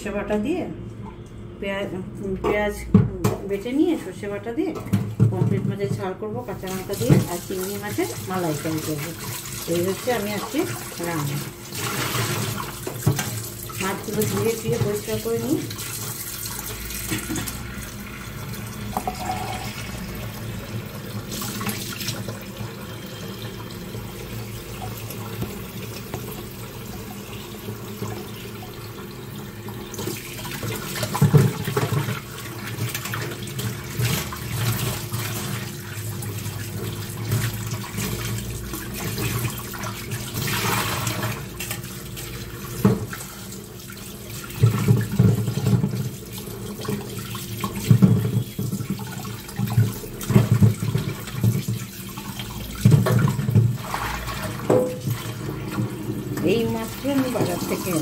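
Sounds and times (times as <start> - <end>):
tap water running into bowl: 4.7 - 58.0
hands rinsing prawns: 6.4 - 20.2
knocks and splashes: 6.6 - 16.1, 30.0 - 43.4, 44.3 - 58.0.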